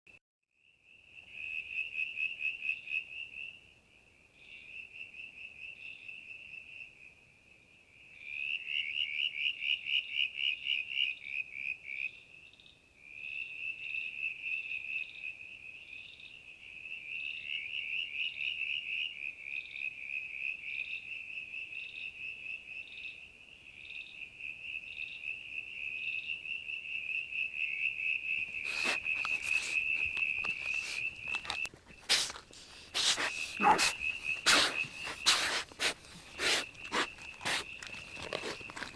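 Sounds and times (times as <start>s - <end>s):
rustles: 28.5s - 38.9s.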